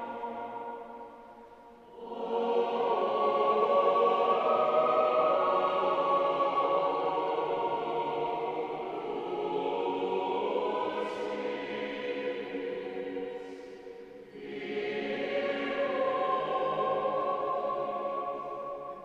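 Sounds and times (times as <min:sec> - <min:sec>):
choir singing held chords: 0:00.0 - 0:19.0.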